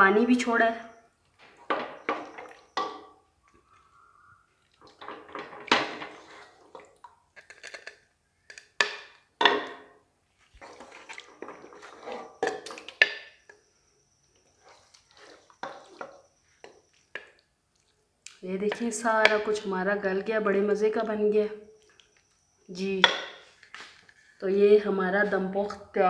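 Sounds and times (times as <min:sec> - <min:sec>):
spoon knocking and scraping pot: 0:01.5 - 0:03.2, 0:10.6 - 0:13.7, 0:14.4 - 0:17.4, 0:18.6 - 0:19.7, 0:23.0 - 0:23.8.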